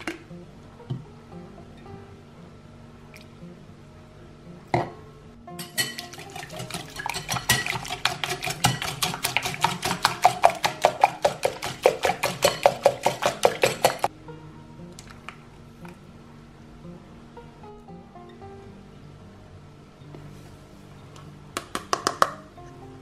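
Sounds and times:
whisk clinking against glass bowl: 5.6s - 14.1s.

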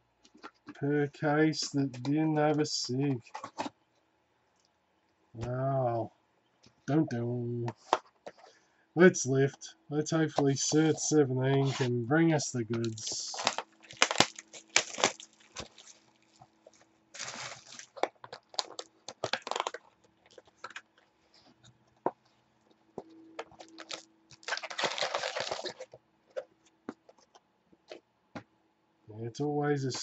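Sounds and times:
faint steady hum: 0.0s - 30.0s
plastic wrap and cardboard rustling: 12.7s - 21.7s, 23.0s - 27.2s.

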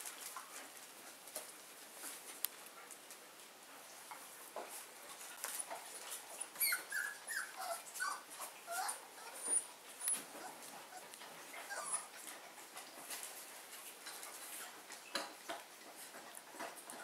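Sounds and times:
puppies whimpering: 6.4s - 12.2s.

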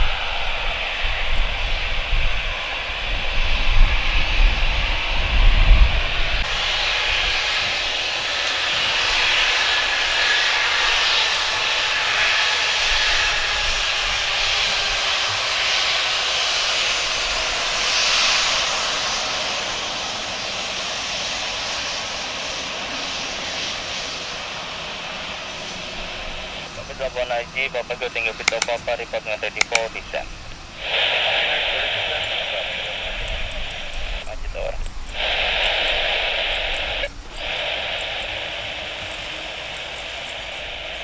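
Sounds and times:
jet engines whining: 0.0s - 41.0s
low buffeting rumbles: 25.8s - 41.0s.

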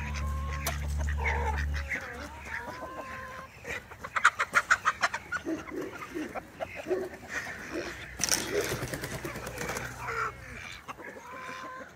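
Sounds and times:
chickens clucking and squawking: 0.0s - 11.9s.

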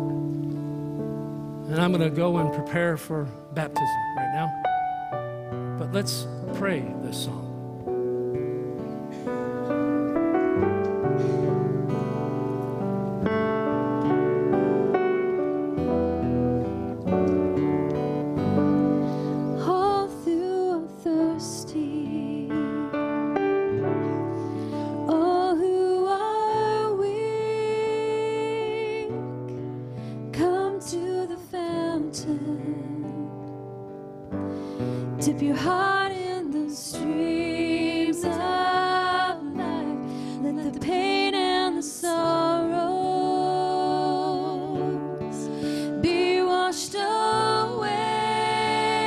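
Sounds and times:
acoustic guitar: 0.0s - 49.0s
piano: 0.0s - 49.0s
woman singing: 19.4s - 23.3s, 24.9s - 33.6s, 35.1s - 49.0s.

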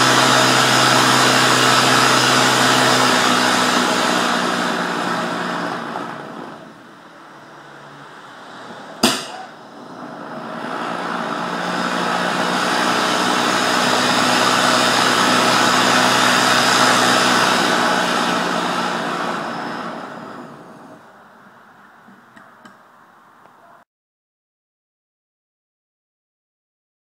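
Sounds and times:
rocket motor exhaust roar: 0.0s - 22.0s
sharp bang: 9.0s - 9.6s.

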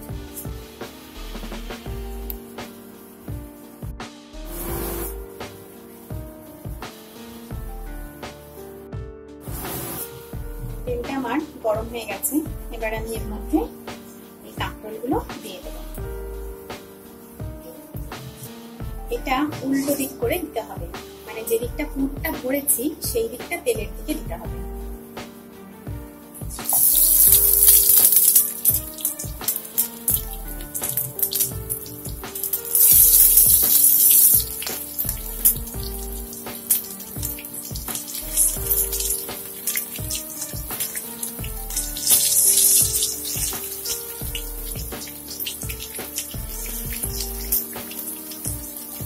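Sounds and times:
background music: 0.0s - 49.0s
food deep-frying in oil: 26.4s - 49.0s.

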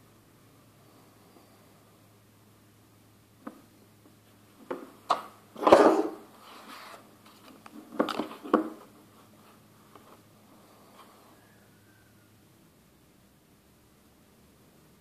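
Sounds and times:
rustling scrape: 5.6s - 8.4s.

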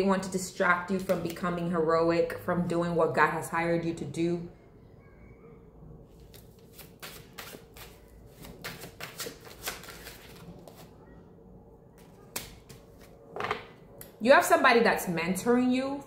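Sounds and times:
cards being shuffled: 6.2s - 10.9s.

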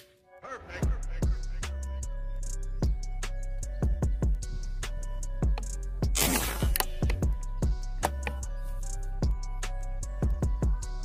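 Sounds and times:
background music with held notes: 0.0s - 11.0s
bass drum beat: 2.5s - 11.0s.

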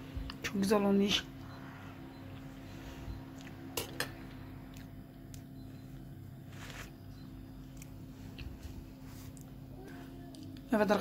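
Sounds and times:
low steady hum: 0.0s - 11.0s
soft rustle: 6.4s - 7.1s, 8.0s - 10.2s.

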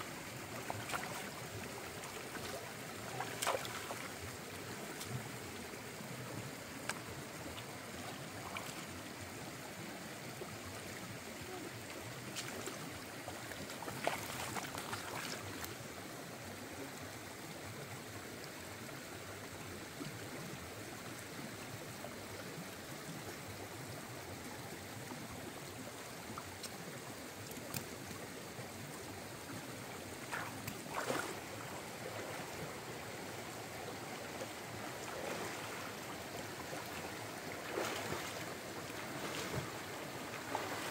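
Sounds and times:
stream running over rocks: 0.0s - 40.9s
hands splashing in water: 30.2s - 31.4s.

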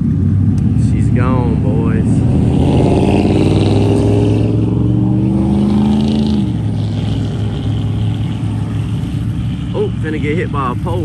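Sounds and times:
truck engine revving: 0.0s - 11.0s.

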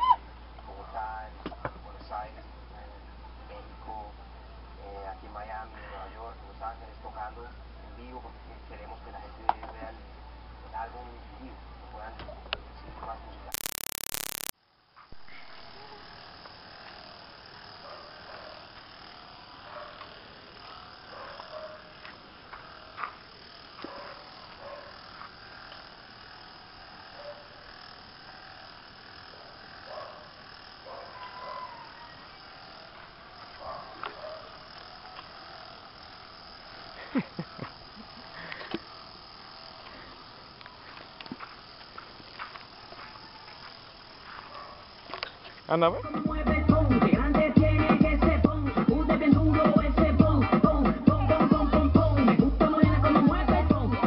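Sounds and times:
sharp clicks: 13.5s - 14.5s
insect buzzing: 13.5s - 54.0s.

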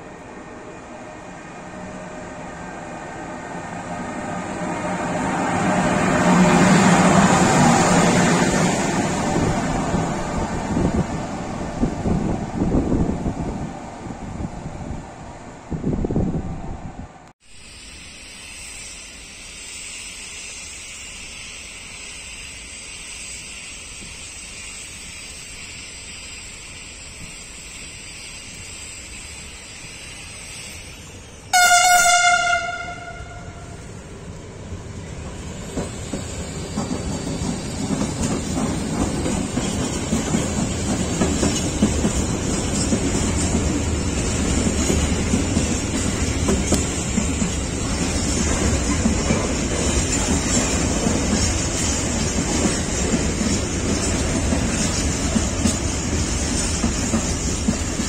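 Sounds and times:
locomotive horn blast: 31.5s - 33.9s
train wheels clicking over rail joints: 34.8s - 58.0s.

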